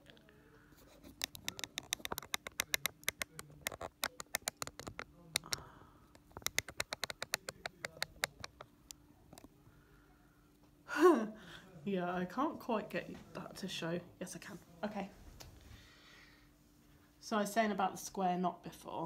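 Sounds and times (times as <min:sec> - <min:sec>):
sock machine needles clicking: 0:01.1 - 0:08.7.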